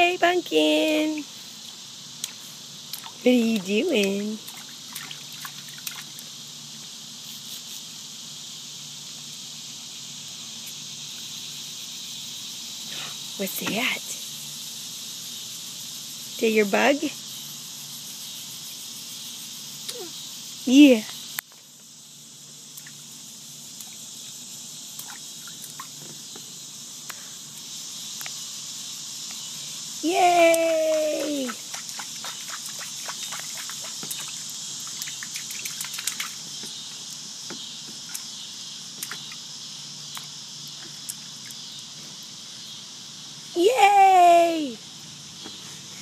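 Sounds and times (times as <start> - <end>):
crickets chirping: 0.0 - 46.0
insects chorus hissing: 0.0 - 46.0.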